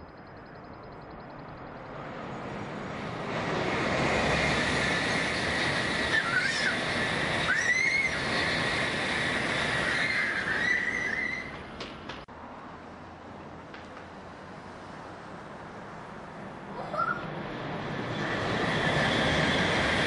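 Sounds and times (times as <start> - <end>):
high-speed train rushing past: 0.0 - 20.0
short high squeals: 6.0 - 11.6.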